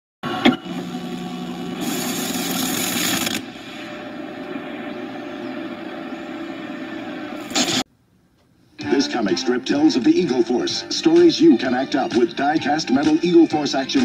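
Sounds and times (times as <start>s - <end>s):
tape hiss and hum: 0.2s - 14.0s.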